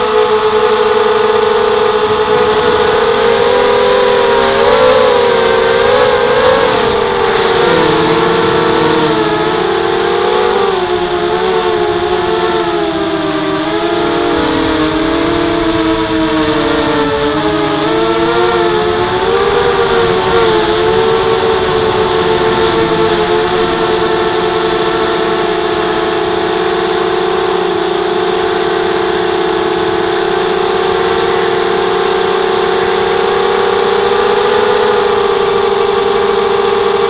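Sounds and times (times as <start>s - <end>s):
quadcopter motors humming: 0.0s - 37.0s.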